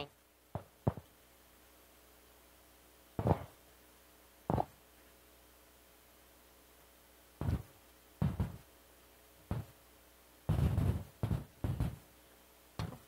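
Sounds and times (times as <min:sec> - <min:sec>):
microphone handling thumps: 0:10.5 - 0:12.0.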